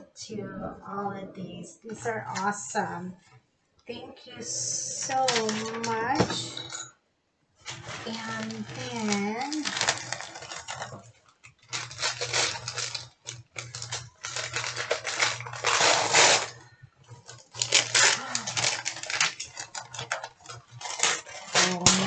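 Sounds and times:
gift wrapping crinkling: 0:05.0 - 0:06.5, 0:07.6 - 0:22.0.

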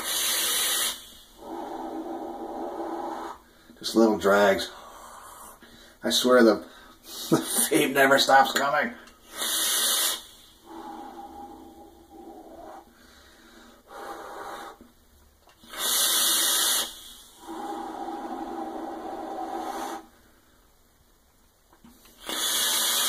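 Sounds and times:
airy whistling vape draws: 0:00.0 - 0:03.4, 0:09.3 - 0:12.9, 0:15.6 - 0:20.1, 0:22.2 - 0:23.0
breathy exhale blast: 0:00.0 - 0:03.8, 0:09.2 - 0:14.9, 0:15.6 - 0:20.6, 0:22.2 - 0:23.0.

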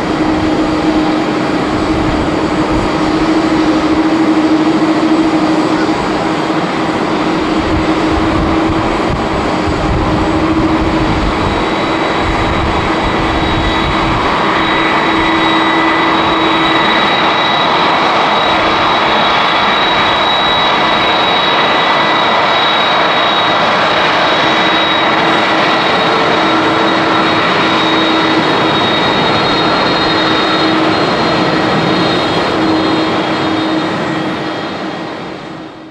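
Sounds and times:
jet engines running with whine: 0:00.0 - 0:35.9.

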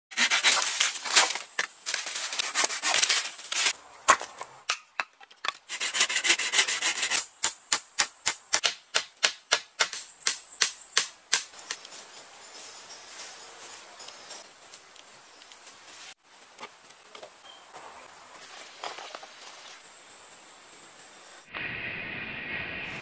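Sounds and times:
hand saw cutting wood: 0:00.1 - 0:01.2, 0:05.7 - 0:07.3.

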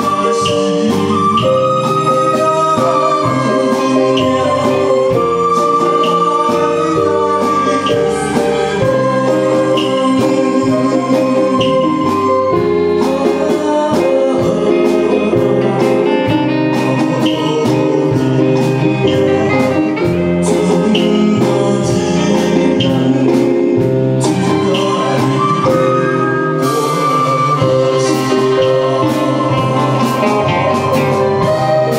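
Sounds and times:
man singing into a microphone: 0:00.0 - 0:31.9
orchestra playing: 0:00.0 - 0:31.9
steady beat: 0:26.6 - 0:31.9.

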